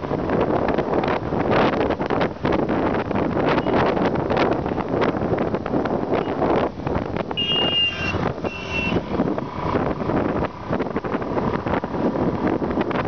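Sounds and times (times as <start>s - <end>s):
wind buffeting microphone: 0.0s - 13.0s
motorcycle engine: 7.1s - 11.1s
high-pitched beeps: 7.4s - 9.0s.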